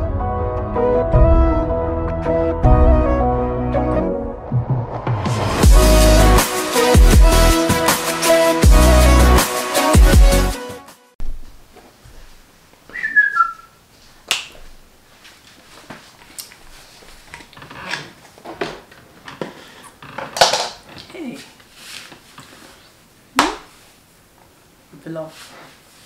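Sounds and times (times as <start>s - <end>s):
whistle-like squeak falling in pitch: 12.9s - 13.7s.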